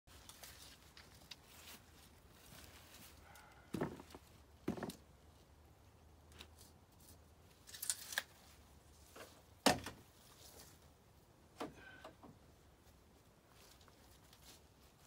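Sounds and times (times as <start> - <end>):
footsteps on dry leaves: 0.1 - 4.8
handling noises: 0.1 - 5.1.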